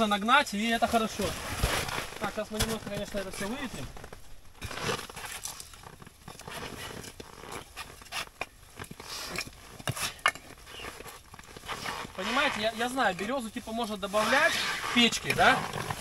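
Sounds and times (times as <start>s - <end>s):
firewood rustling and scraping: 0.0s - 16.0s.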